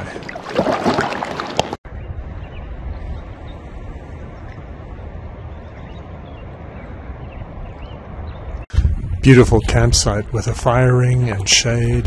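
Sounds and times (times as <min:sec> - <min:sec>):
water splashing: 0:00.0 - 0:01.8
wind on microphone: 0:01.9 - 0:12.0.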